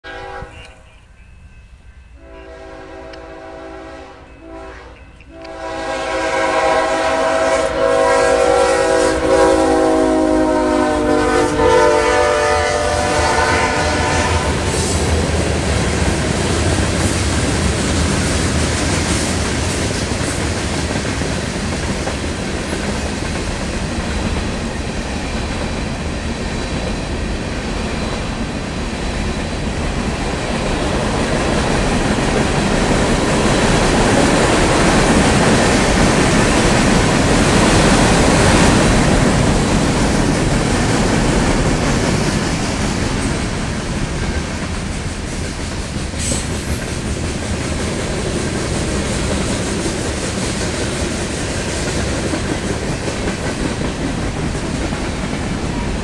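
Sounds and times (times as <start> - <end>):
locomotive air horn blasts: 0.0 - 0.9, 2.2 - 14.7
train wheels clickety-clack: 11.2 - 56.0.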